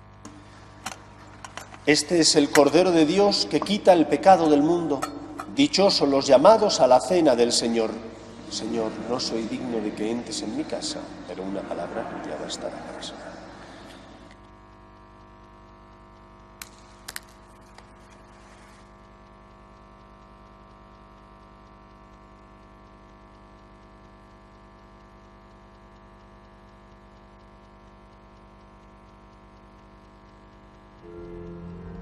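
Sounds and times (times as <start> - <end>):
electrical mains hum: 0.0 - 32.0
metal vessels clinking: 5.0 - 5.7
music: 31.0 - 32.0.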